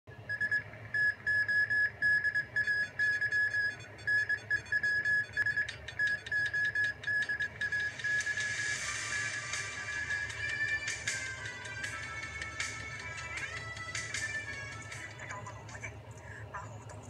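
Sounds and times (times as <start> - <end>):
synth beeping pattern: 0.3 - 13.9.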